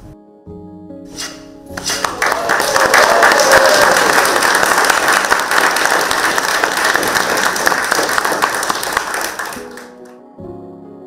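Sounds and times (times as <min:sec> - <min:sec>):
people clapping: 0:01.8 - 0:10.2.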